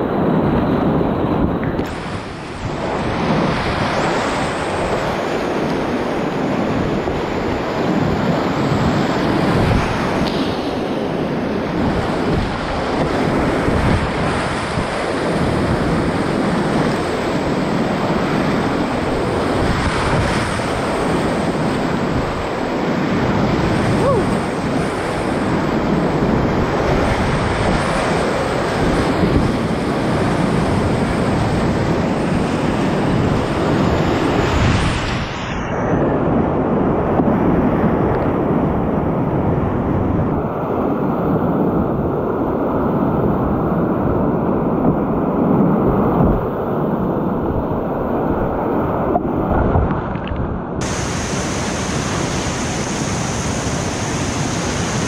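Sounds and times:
whitewater rapids rushing: 50.8s - 55.0s.

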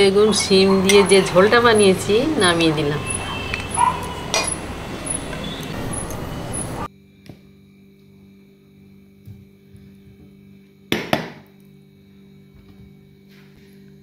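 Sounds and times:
faint hum: 0.0s - 10.9s.

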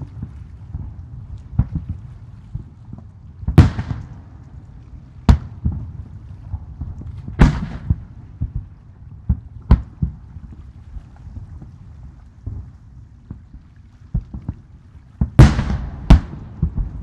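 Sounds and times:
firework shells bursting: 15.4s - 17.0s.

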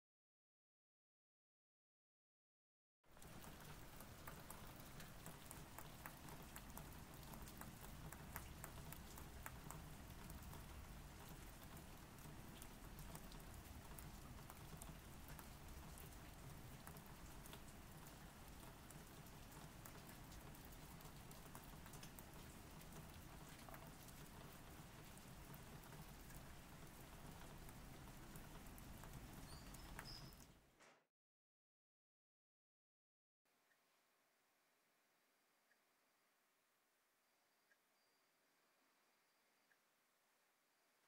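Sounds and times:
light rain patter: 3.1s - 30.7s.

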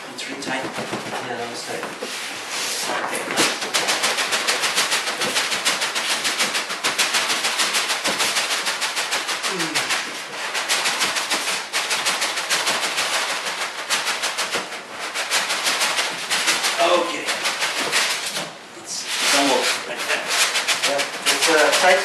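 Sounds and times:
styrofoam scraping inside cardboard box: 19.0s - 22.0s.

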